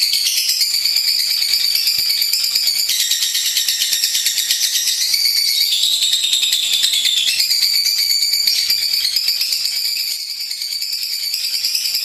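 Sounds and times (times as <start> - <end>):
bird chirping and trilling: 0.0 - 12.0.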